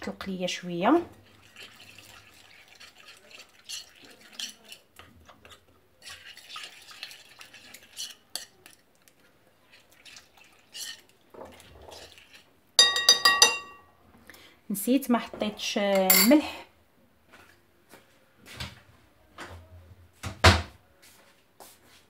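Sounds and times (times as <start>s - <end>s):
metal spoon clattering on glass bowl: 12.8s - 13.9s, 16.0s - 16.4s.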